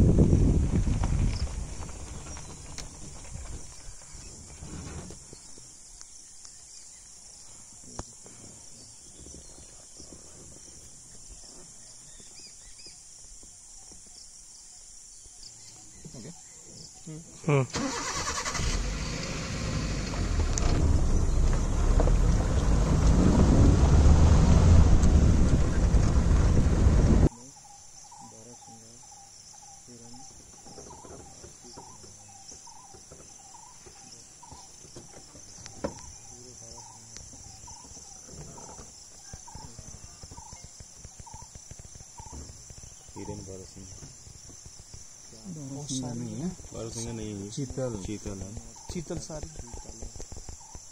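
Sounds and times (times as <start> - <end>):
insects buzzing: 0.0 - 50.9
faint chirps: 3.6 - 17.7, 27.3 - 50.9
vehicle engine rumbling: 17.7 - 27.3, 30.0 - 50.9.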